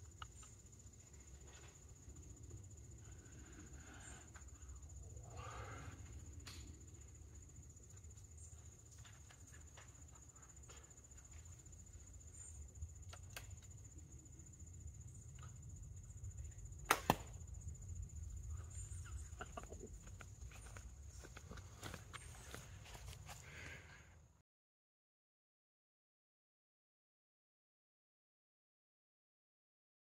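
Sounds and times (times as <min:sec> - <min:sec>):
high insect drone: 0:00.0 - 0:23.9
bowstring cracks: 0:16.8 - 0:17.4.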